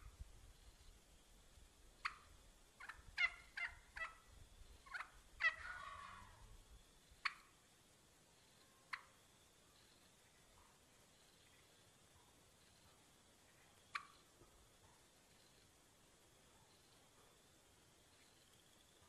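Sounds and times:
turkey hen clucking: 2.0s - 6.4s, 7.2s - 7.6s, 8.9s - 9.2s, 13.9s - 14.3s.

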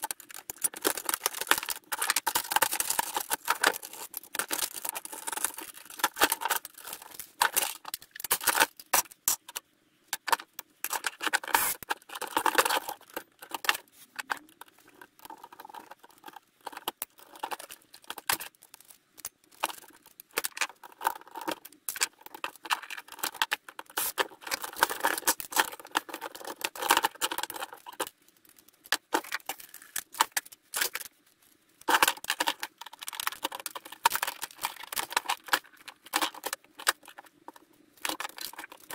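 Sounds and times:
parts clicking and rattling: 0.0s - 31.2s, 31.8s - 38.9s.

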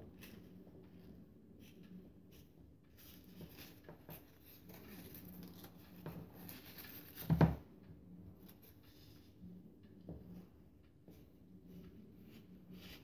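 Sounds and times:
crepe paper rustling: 3.0s - 7.5s.

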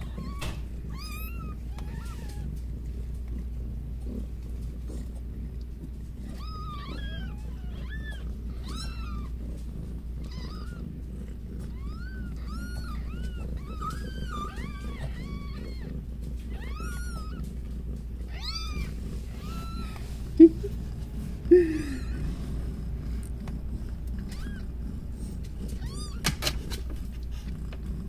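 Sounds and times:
kittens mewing: 0.0s - 27.8s.

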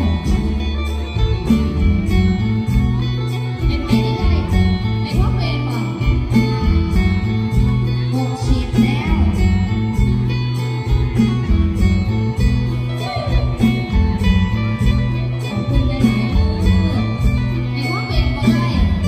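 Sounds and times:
electric guitar melody: 0.0s - 19.0s
held bass notes: 0.0s - 19.0s.

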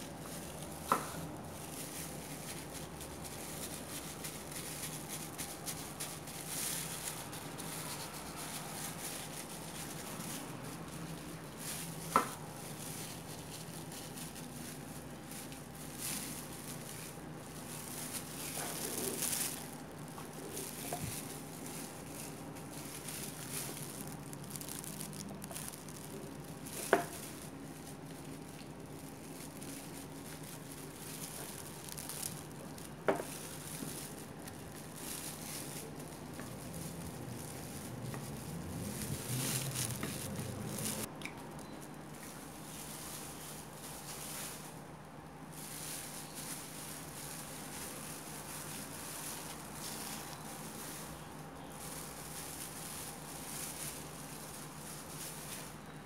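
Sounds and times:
soft squishing and crinkling: 0.0s - 56.0s.

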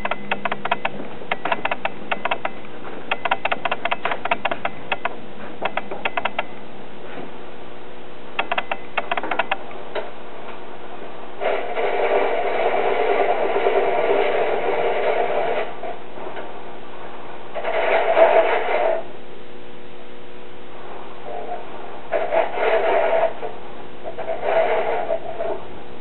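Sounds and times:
turning tool scraping wood: 0.0s - 6.5s, 11.4s - 16.0s, 17.6s - 19.1s, 21.3s - 25.6s
sharp clicks: 0.0s - 6.6s, 8.4s - 9.6s.

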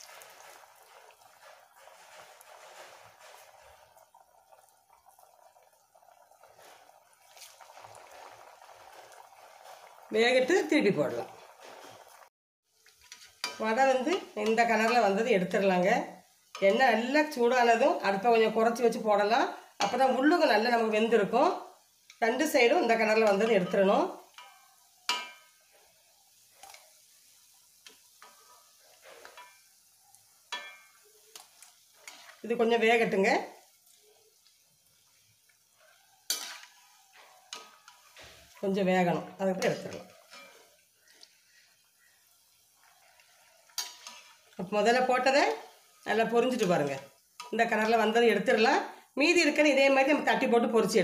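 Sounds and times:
food deep-frying in oil: 0.0s - 51.0s
metal spatula clinking on pan: 23.2s - 25.6s, 29.2s - 29.7s, 30.5s - 31.0s, 36.3s - 36.7s, 40.2s - 40.7s, 43.7s - 44.3s.

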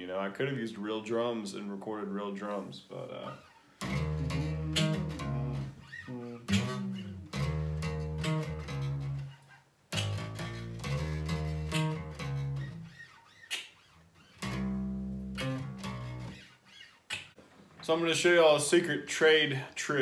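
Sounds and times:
electric bass guitar bass line: 3.0s - 13.0s, 14.4s - 16.5s.

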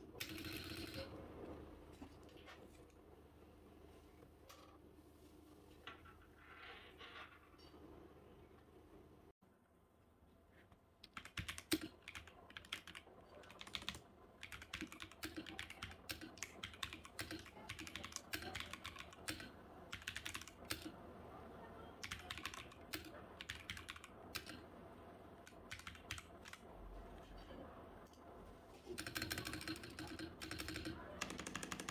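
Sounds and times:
mechanical keyboard typing: 0.1s - 1.1s, 11.0s - 21.0s, 22.0s - 24.6s, 25.4s - 26.7s, 29.0s - 31.9s.

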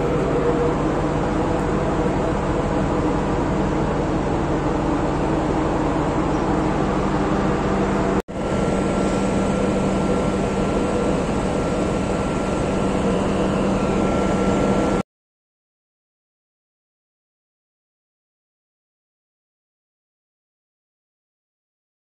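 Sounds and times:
ship machinery hum: 0.0s - 15.0s
thin steady whine: 0.0s - 15.0s.

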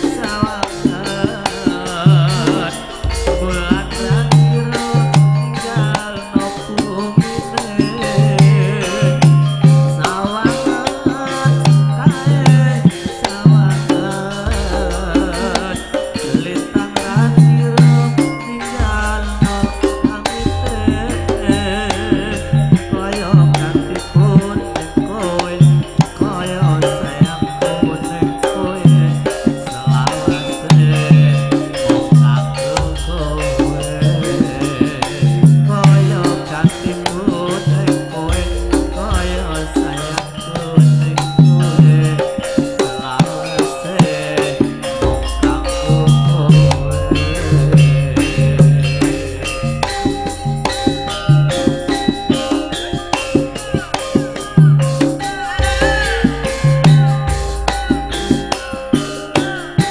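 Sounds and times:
ringing pitched notes: 0.0s - 59.9s
deep low gong note: 46.3s - 49.4s.

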